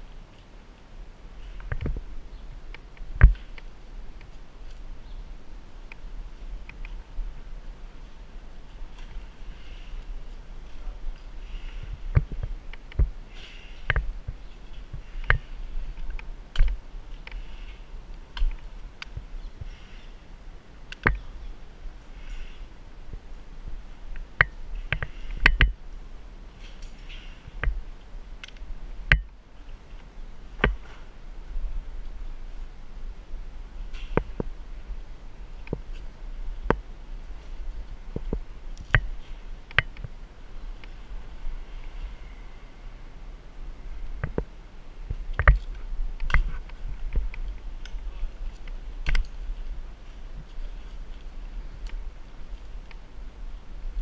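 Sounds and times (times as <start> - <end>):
steady low rumble: 0.0 - 54.0
climbing hardware clicking and knocking: 24.2 - 25.8.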